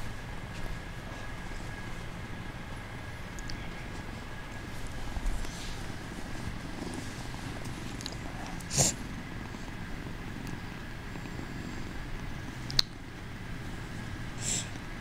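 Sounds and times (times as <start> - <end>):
kitten purring: 3.0 - 15.0.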